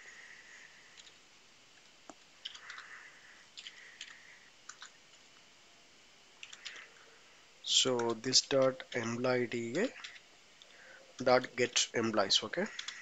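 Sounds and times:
keyboard typing: 0.9 - 1.2, 2.4 - 5.0, 6.4 - 7.0, 8.0 - 8.7, 9.9 - 10.2, 12.7 - 13.0.

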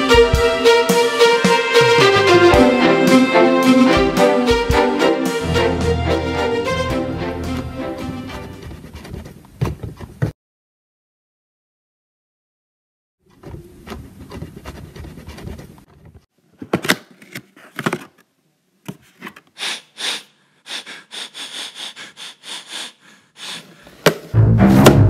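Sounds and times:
short hissing bursts: 19.6 - 23.7.

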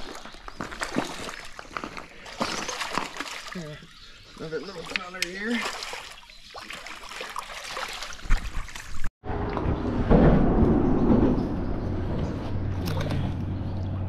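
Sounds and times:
water splashing and sloshing: 0.0 - 14.0
low rumble: 9.2 - 14.0.

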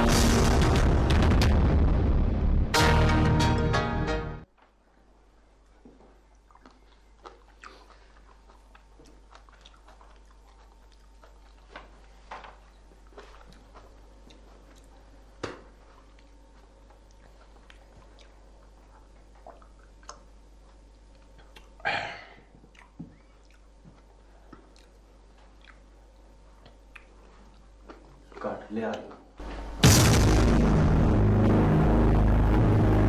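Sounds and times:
man chewing food: 5.4 - 28.6.

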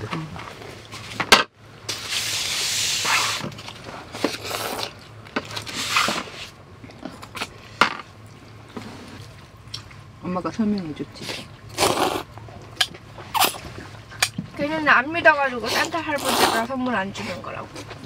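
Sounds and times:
noodles being slurped: 4.2 - 6.5, 11.3 - 12.3, 15.6 - 16.7.

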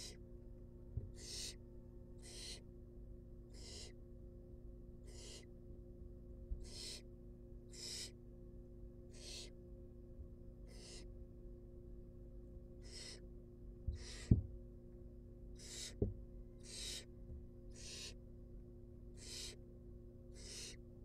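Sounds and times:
owl chicks hissing: 0.0 - 0.2, 1.2 - 1.6, 2.2 - 2.6, 3.5 - 4.0, 5.0 - 5.5, 6.6 - 7.1, 7.7 - 8.2, 9.1 - 9.5, 10.7 - 11.1, 12.8 - 13.2, 13.9 - 14.3, 15.5 - 16.0, 16.6 - 17.1, 17.7 - 18.2, 19.1 - 19.6, 20.3 - 20.8
faint electrical hum: 0.0 - 21.0.

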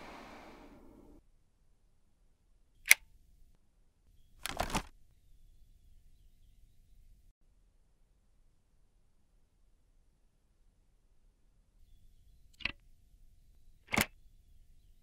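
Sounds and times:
fan airflow hiss: 0.0 - 1.2
sharp click: 2.8 - 3.0, 13.9 - 14.2
plastic latch clicks: 13.9 - 14.2.

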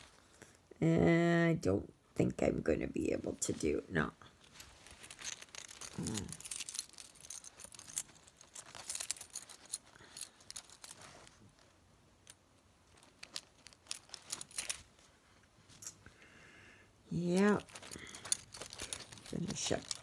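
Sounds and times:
fabric rustling and crinkling: 3.3 - 15.9, 17.2 - 20.0.

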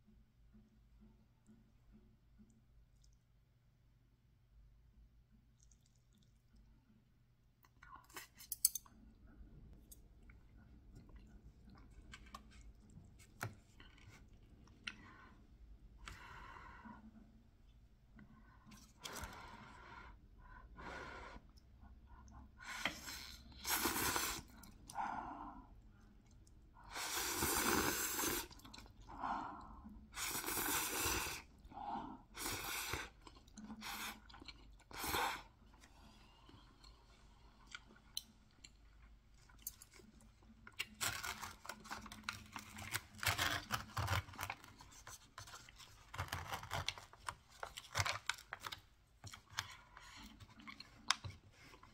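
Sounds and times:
noodles slurped and chewed: 21.7 - 25.0, 25.6 - 45.8, 49.2 - 51.9.

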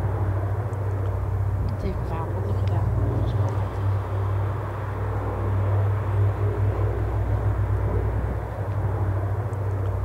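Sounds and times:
propeller aircraft engines droning: 0.0 - 10.0.

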